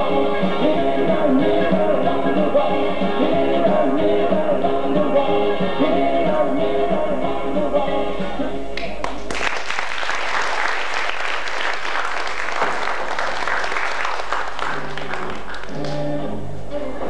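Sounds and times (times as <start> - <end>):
music playing: 0.0 - 9.0, 13.6 - 17.0
audience applauding: 9.0 - 16.2.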